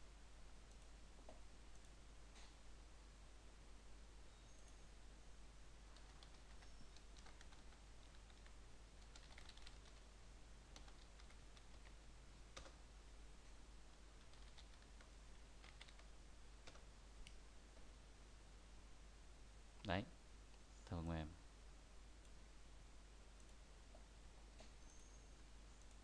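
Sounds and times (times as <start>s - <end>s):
steady low hum and hiss: 0.0s - 26.0s
computer keyboard key clicks: 9.1s - 10.0s.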